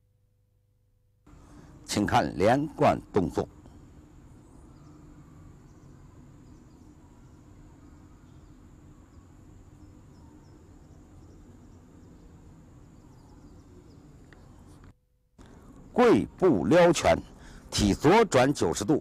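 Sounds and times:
low rumble and hiss: 1.3s - 19.0s
faint high chirps: 3.6s - 16.3s.

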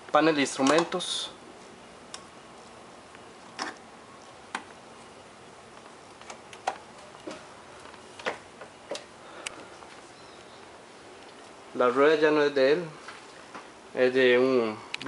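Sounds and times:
switch knobs clicking: 0.6s - 1.0s, 5.8s - 9.6s.

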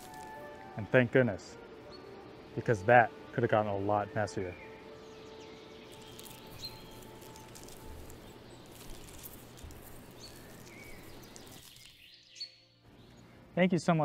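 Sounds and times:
small ticks and rustles: 0.0s - 0.4s, 5.8s - 12.2s
background hiss: 0.0s - 14.0s
high bird chirps: 4.6s - 13.3s.

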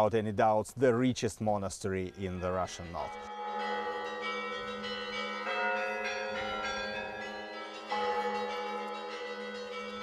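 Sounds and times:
church bells ringing: 2.2s - 10.0s.

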